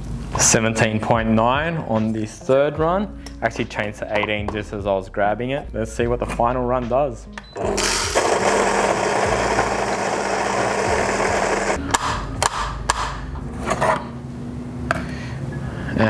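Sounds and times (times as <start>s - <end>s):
coffee grinder crunching beans: 7.6s - 11.8s
grinder motor hum: 7.6s - 11.8s.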